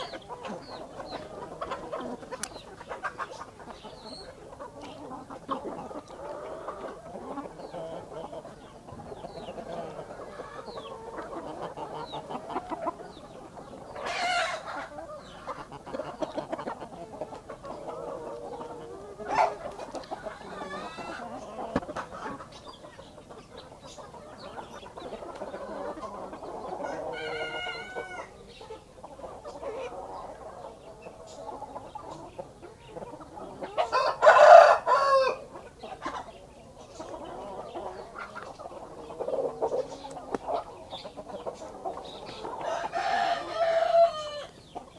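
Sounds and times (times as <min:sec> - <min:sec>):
chickens clucking: 0:00.0 - 0:44.9
roosters crowing: 0:05.0 - 0:16.5, 0:17.7 - 0:22.4, 0:25.1 - 0:28.6, 0:33.4 - 0:35.6, 0:37.2 - 0:44.9.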